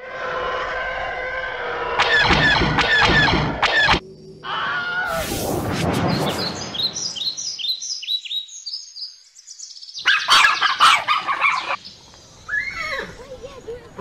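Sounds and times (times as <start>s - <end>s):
loud burst of noise: 5.1s - 7.2s
songbird chirping: 6.0s - 14.0s.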